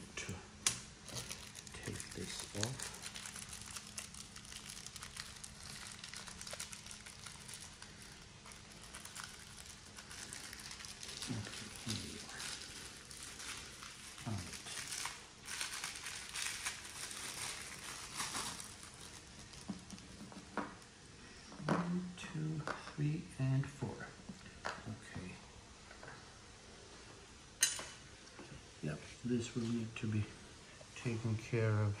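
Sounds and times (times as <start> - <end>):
plastic packaging crinkling: 1.0 - 20.9.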